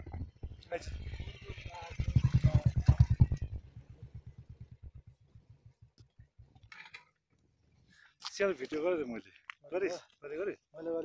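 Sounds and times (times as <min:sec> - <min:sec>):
motorcycle engine running: 0:00.0 - 0:06.6.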